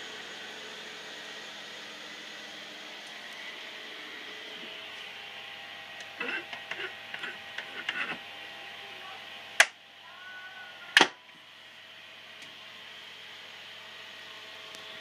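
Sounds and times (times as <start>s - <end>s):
steady background hum: 0.0s - 15.0s
loud switch clicks: 11.0s - 11.2s.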